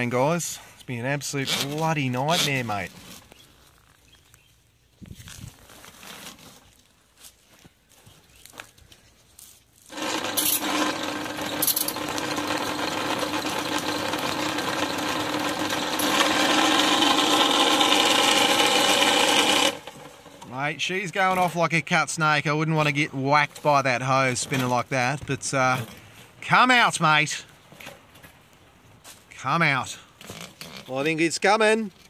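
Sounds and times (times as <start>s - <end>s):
spinning cable whipping hose: 9.8s - 20.5s
drain cleaning machine running: 9.9s - 20.7s.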